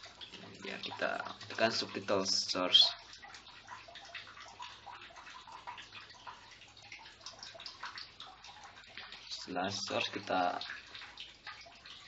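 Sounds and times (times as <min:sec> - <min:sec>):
background hiss with low hum: 0:00.0 - 0:12.0.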